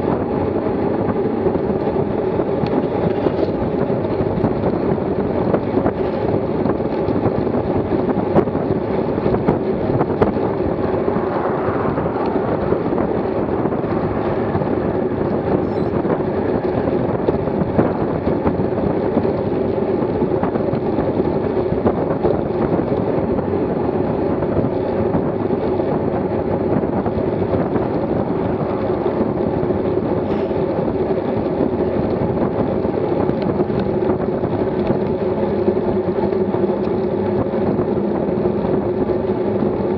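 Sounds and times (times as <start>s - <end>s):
bicycle road noise: 0.0s - 39.9s
wind rushing on microphone: 0.0s - 39.9s.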